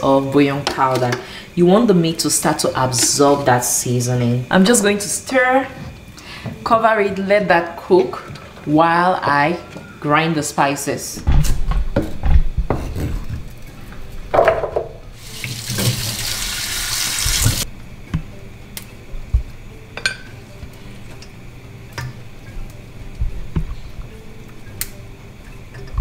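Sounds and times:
tap running into a sink: 0:15.4 - 0:17.6.

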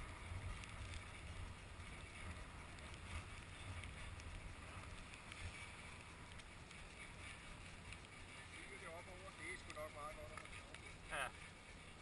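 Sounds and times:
skis sliding over snow: 0:00.0 - 0:12.0
wind rumble on microphone: 0:00.0 - 0:12.0.

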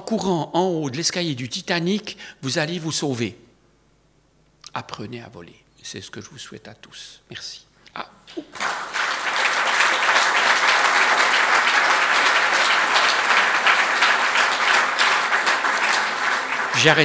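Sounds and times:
audience applauding: 0:08.3 - 0:17.0
people talking: 0:16.7 - 0:17.0.

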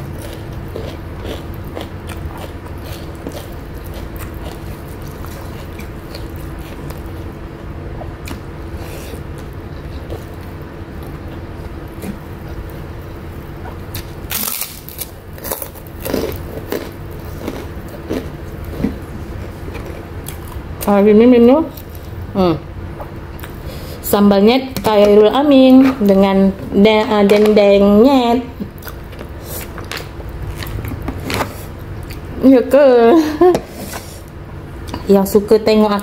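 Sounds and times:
steady low hum: 0:00.0 - 0:36.0
chewing with wet mouth clicks: 0:00.1 - 0:07.2, 0:23.0 - 0:23.6, 0:28.6 - 0:31.0
cracker crackling: 0:13.9 - 0:18.7.

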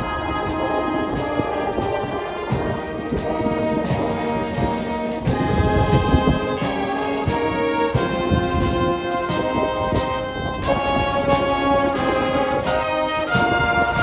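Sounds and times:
brass and saxophones chords: 0:00.0 - 0:14.0
drum kit beat: 0:00.0 - 0:14.0.

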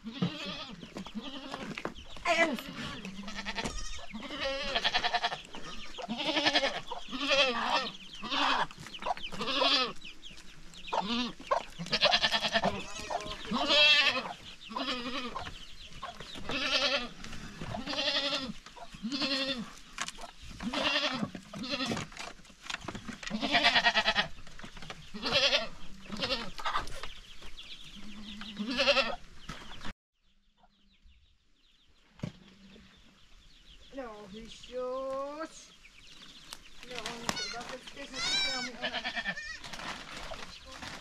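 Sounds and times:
young goats bleating: 0:00.0 - 0:10.1, 0:10.8 - 0:19.8, 0:20.6 - 0:22.2, 0:23.2 - 0:24.4, 0:25.1 - 0:26.9, 0:27.7 - 0:29.3, 0:36.8 - 0:39.9.

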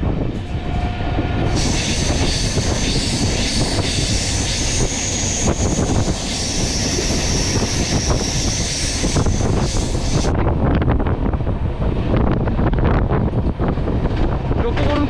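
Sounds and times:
train wheels roaring on rails: 0:00.0 - 0:15.0
high wheel squeal: 0:01.5 - 0:10.3.

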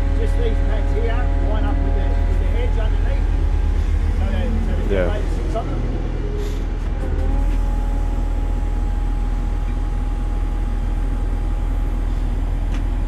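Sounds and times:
crane diesel engine running: 0:00.0 - 0:13.0
steady whine: 0:00.0 - 0:13.0.

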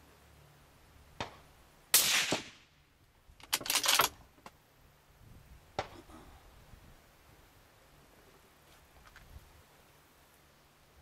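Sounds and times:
suppressed rifle shot: 0:02.0 - 0:02.7.

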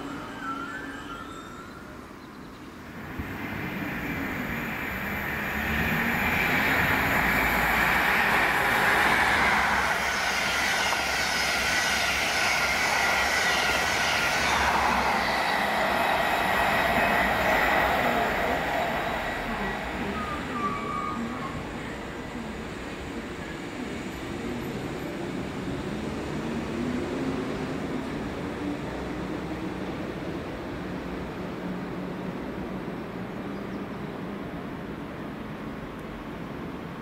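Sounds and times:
diesel train passing at speed: 0:00.0 - 0:37.0
wheels on rails rushing: 0:03.0 - 0:22.1.

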